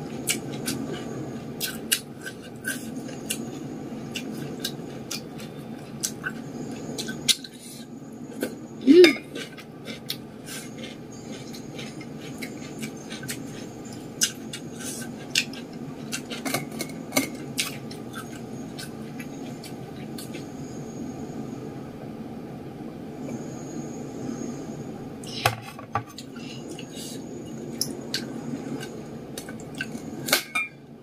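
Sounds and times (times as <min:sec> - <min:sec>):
chewing crunches and clicks: 0:00.2 - 0:07.5, 0:09.2 - 0:20.5, 0:27.8 - 0:30.4.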